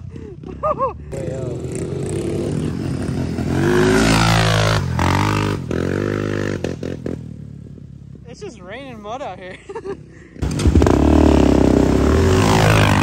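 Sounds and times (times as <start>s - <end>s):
dirt bike engine revving: 0.2s - 7.5s, 10.2s - 13.0s.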